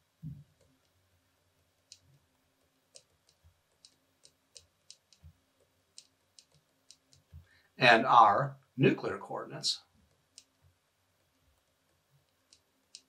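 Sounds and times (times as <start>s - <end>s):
stylus tapping on tablet screen: 1.6s - 7.5s.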